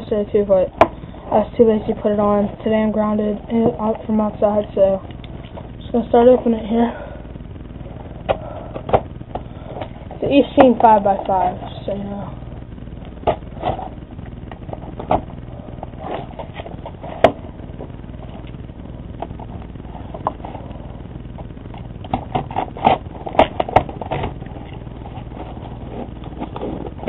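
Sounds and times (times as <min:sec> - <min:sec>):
steady low hum: 0:00.0 - 0:27.0
packaging crinkling and scraping: 0:22.0 - 0:27.0.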